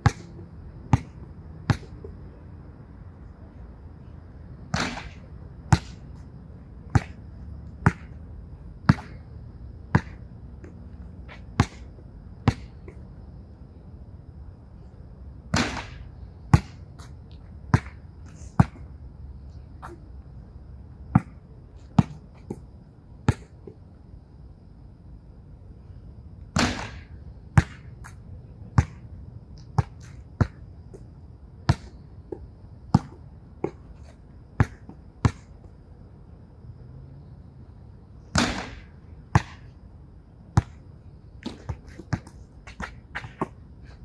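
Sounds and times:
ball hitting backboard and rim: 0.0 - 2.1, 4.7 - 6.0, 6.9 - 7.2, 7.8 - 8.2, 8.9 - 9.2, 9.9 - 10.2, 11.3 - 12.7, 15.5 - 16.8, 21.1 - 21.4, 26.5 - 28.2, 28.8 - 29.0, 31.7 - 32.0, 32.9 - 33.8, 34.6 - 35.5, 38.3 - 39.7, 41.4 - 43.6
basketball bouncing on hard court: 0.0 - 2.1, 6.9 - 7.2, 7.8 - 8.2, 8.9 - 9.2, 9.9 - 10.2, 27.6 - 27.9, 28.8 - 29.0, 31.7 - 32.0, 32.9 - 33.8, 34.6 - 35.5, 38.4 - 39.7, 41.4 - 43.6.

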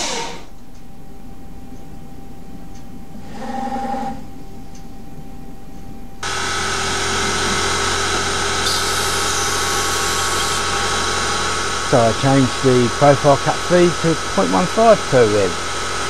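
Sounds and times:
drill cutting plastic hiss: 6.2 - 13.2
lathe spindle whine: 6.2 - 16.0
machine hum: 6.2 - 16.0.

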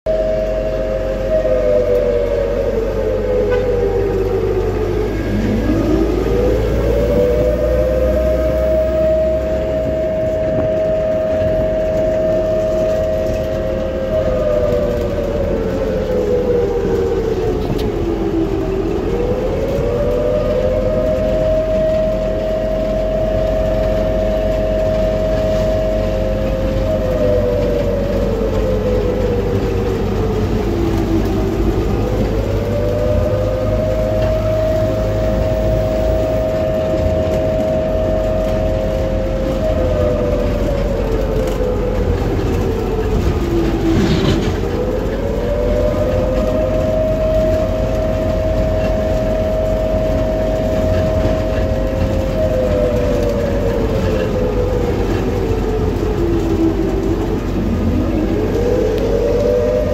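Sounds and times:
low rumble: 0.1 - 59.9
siren wailing: 0.1 - 59.9.

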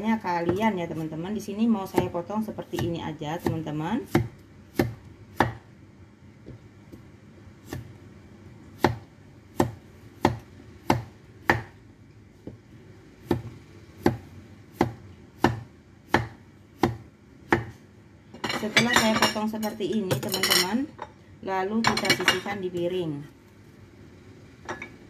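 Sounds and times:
cleaver chopping on wooden board: 2.8 - 5.6, 9.6 - 11.7, 14.8 - 17.8.

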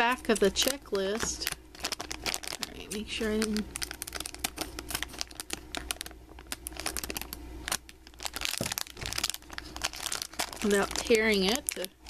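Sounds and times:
scissors snipping foil bag: 0.0 - 7.3, 8.2 - 11.9
foil bag crinkling: 0.0 - 12.0.

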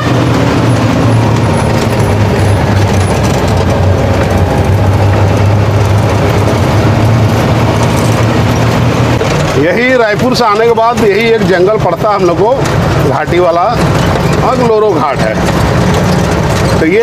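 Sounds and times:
truck engine humming: 0.0 - 17.0
tyre and road noise: 0.0 - 17.0.

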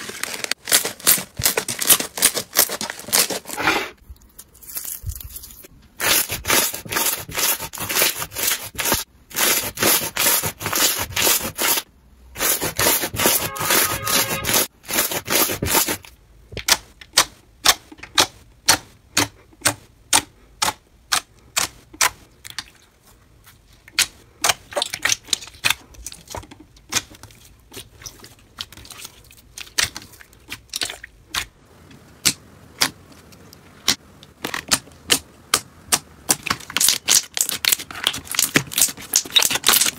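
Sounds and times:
crunchy slime crackling: 0.0 - 3.6, 36.2 - 39.9.

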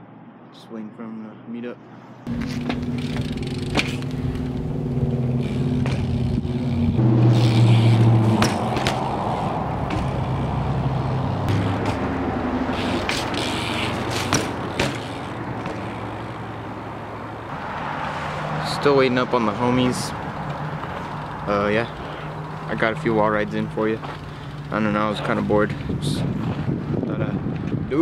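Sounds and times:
sharp clacks from bike: 2.3 - 4.7, 5.4 - 6.3, 7.4 - 10.7, 11.5 - 12.1, 12.7 - 16.4
bike tyres rolling on concrete: 2.3 - 27.8.

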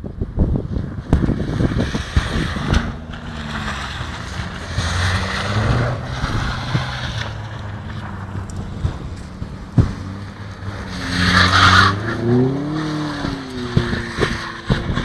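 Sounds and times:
wind buffeting microphone: 0.0 - 15.0
car engine revving: 0.8 - 15.0.

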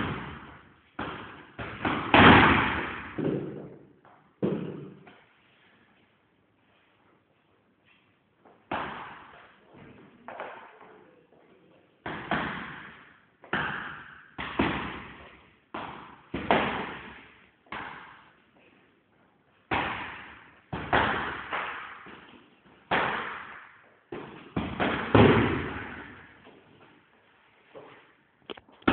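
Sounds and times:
punches thudding on heavy bag: 0.0 - 3.6, 22.9 - 26.2.

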